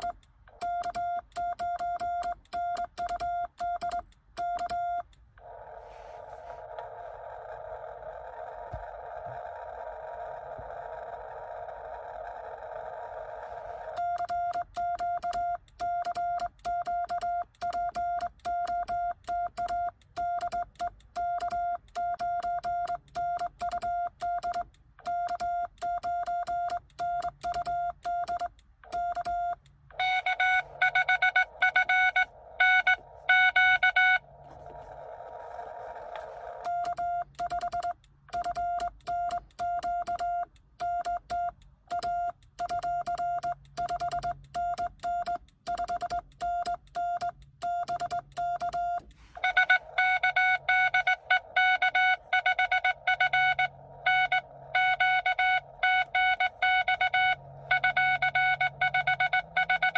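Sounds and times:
morse code tone keying: 0.0s - 5.2s, 13.9s - 34.5s, 36.6s - 59.9s
higher-pitched morse signal: 30.0s - 34.3s, 49.4s - 59.9s.

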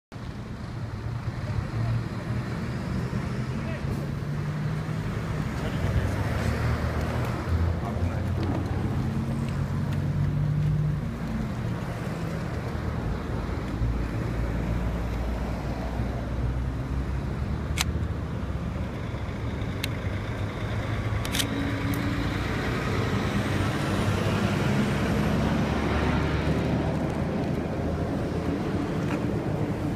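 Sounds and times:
diesel truck engines: 0.1s - 29.9s
sharp clicks: 17.7s - 18.0s, 21.2s - 22.1s.

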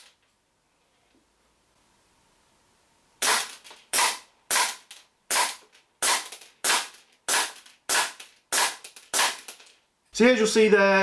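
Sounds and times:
airsoft pistol shots: 3.2s - 9.6s.

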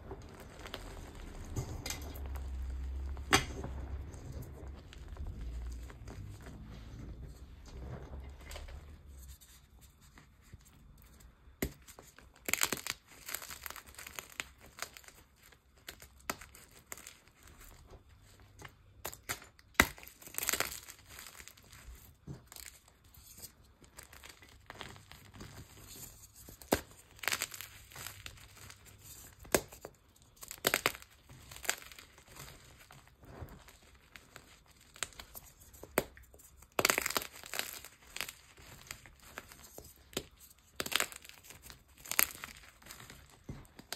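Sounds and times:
powder rustling: 0.0s - 11.2s, 20.1s - 43.9s
hands crunching chalk powder: 0.0s - 43.9s.

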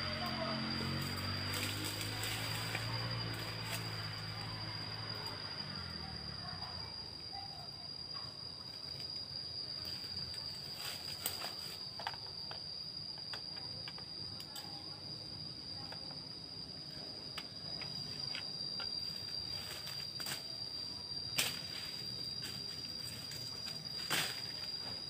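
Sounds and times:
insect trilling: 0.0s - 25.0s
footsteps in dry leaves: 1.0s - 4.2s.

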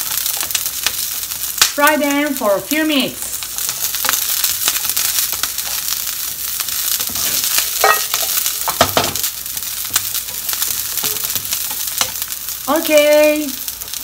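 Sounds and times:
food sizzling in hot oil: 0.0s - 14.0s
spatula scraping pan: 6.7s - 12.4s.

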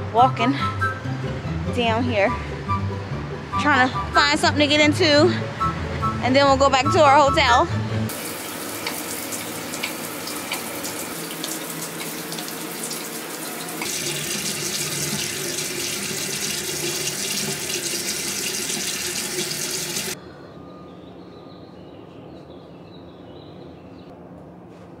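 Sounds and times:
running water: 8.1s - 20.2s.

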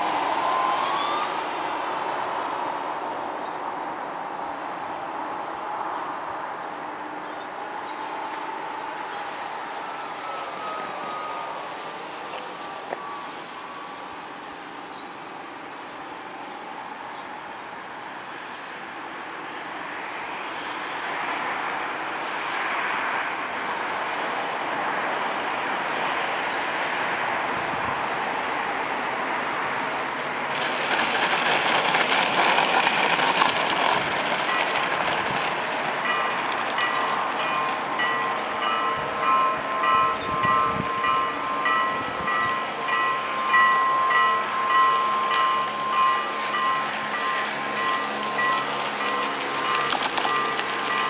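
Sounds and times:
electric model plane rushing: 0.0s - 1.5s
wheels rolling on asphalt: 0.0s - 51.0s.

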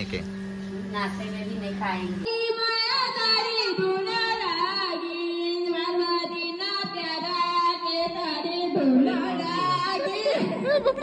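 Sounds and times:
woman singing into microphone: 2.3s - 10.6s.

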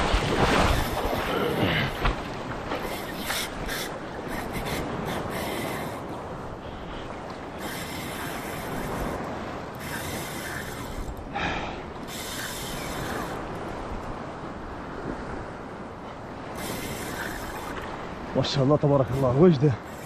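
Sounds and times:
fishing reel cranking: 2.8s - 6.0s, 7.6s - 11.2s, 12.0s - 13.4s, 16.6s - 17.8s.

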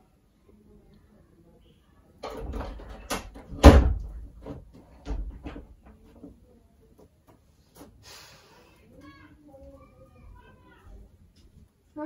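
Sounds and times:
knocks and bumps in a room: 2.2s - 6.4s.

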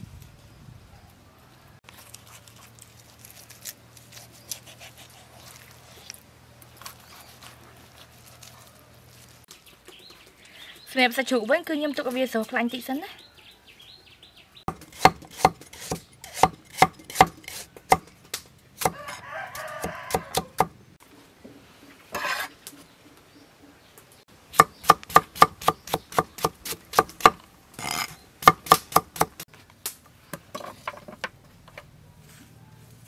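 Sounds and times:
cleaver chopping on cutting board: 14.7s - 18.1s, 19.8s - 20.7s, 24.6s - 27.4s, 28.4s - 29.4s.

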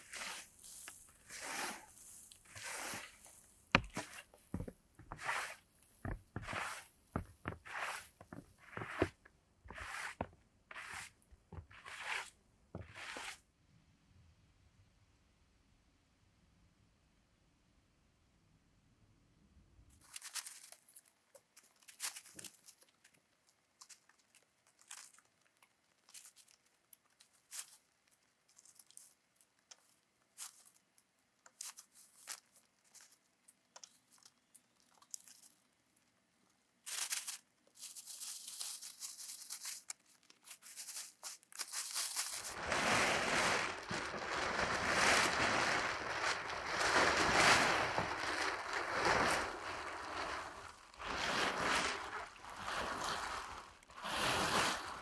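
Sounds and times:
plastic tarp rustling: 0.0s - 10.3s, 20.0s - 21.1s, 36.8s - 55.0s
crunching in dry leaves: 20.0s - 23.0s, 31.6s - 33.2s, 36.8s - 55.0s.

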